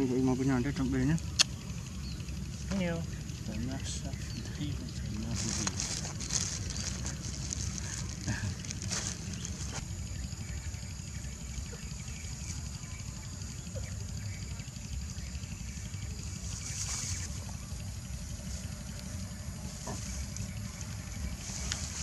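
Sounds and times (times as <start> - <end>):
low outdoor rumble: 0.0 - 22.0
rustle of dry grass: 5.0 - 9.9, 16.2 - 22.0.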